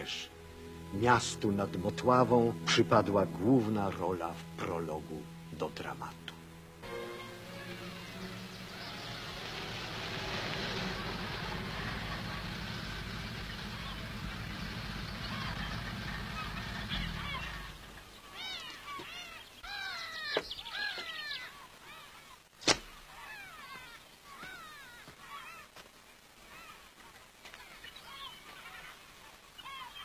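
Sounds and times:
geese honking: 6.8 - 22.2
car engine running: 7.5 - 18.2.

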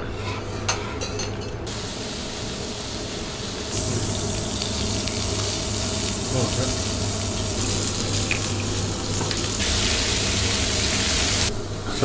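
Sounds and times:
tableware clinking: 0.6 - 1.6
food sizzling on griddle: 1.7 - 11.5.

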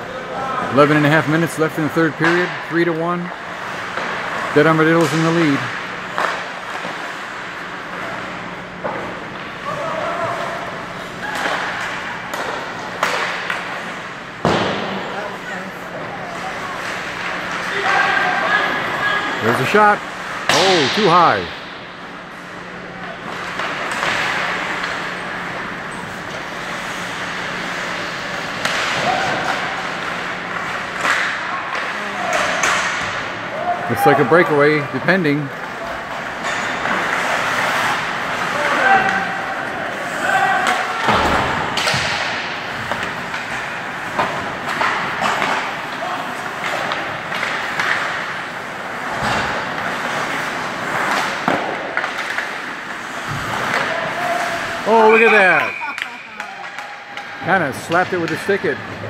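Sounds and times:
steady low hum: 0.0 - 32.2
hockey sticks and puck clattering: 0.0 - 59.0
sharp knocks of sticks and puck: 11.3 - 15.0, 20.4 - 21.8, 28.4 - 33.2, 40.6 - 53.9, 56.4 - 58.7
skates scraping on ice: 35.5 - 55.7
rush of skates on ice: 37.0 - 41.5.

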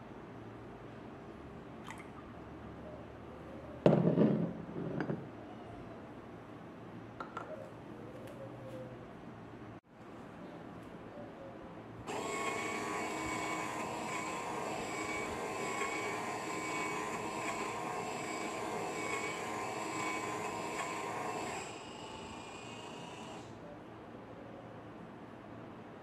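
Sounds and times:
coffee machine motor whirring: 12.1 - 23.6.

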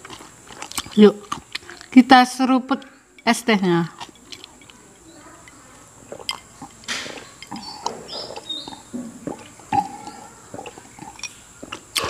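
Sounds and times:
person slurping and swallowing: 6.1 - 12.0.

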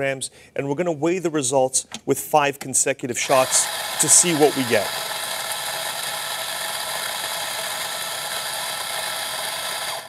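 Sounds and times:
coffee grinder whirring: 3.2 - 10.0.

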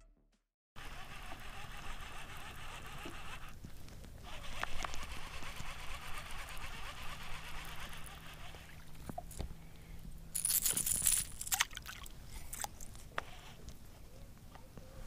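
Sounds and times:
outdoor background noise on water: 0.8 - 15.0
fishing rod and reel clicks: 0.9 - 3.6, 4.2 - 9.4.

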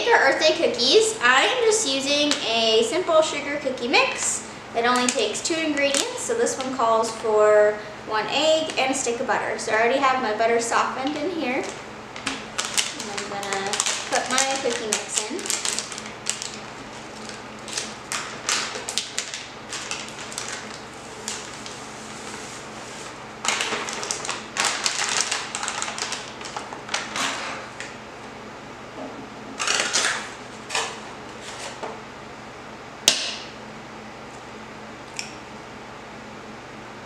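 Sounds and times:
mix rustling into a bowl: 11.0 - 28.0
packet tearing and crinkling: 11.6 - 22.2, 23.4 - 27.6, 29.6 - 31.0.

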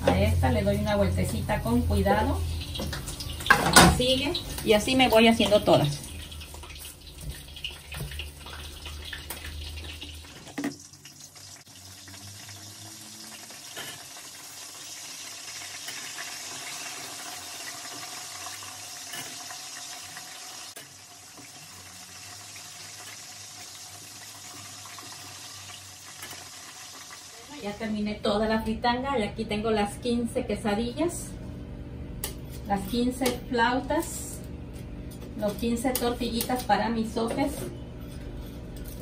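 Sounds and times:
food frying in hot oil: 0.0 - 28.1.

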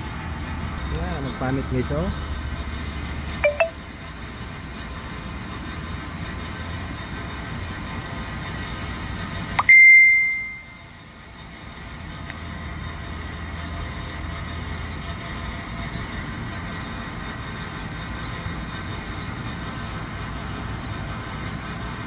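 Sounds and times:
high ring: 3.4 - 3.8, 9.6 - 10.7.

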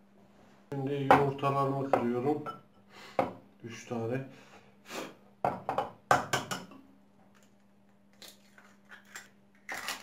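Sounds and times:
eggshells cracking: 8.1 - 10.0.

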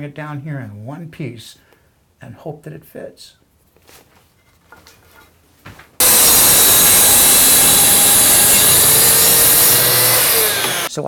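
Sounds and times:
track saw cutting wood: 6.0 - 10.9.

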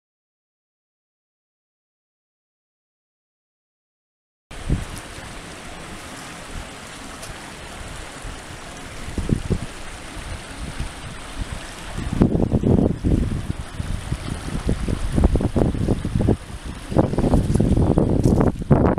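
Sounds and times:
floodwater rushing: 4.5 - 18.9
wind rumble on microphone: 4.5 - 18.9.

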